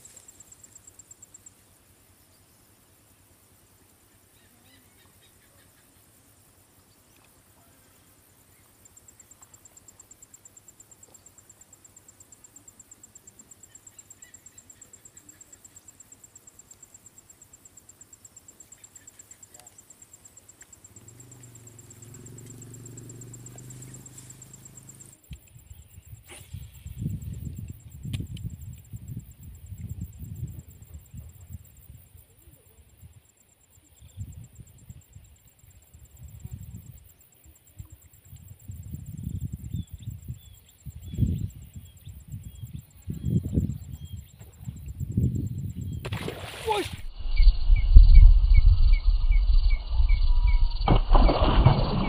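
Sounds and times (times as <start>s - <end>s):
faint high chirps: 39.2s - 51.0s
low thumps: 47.1s - 52.0s.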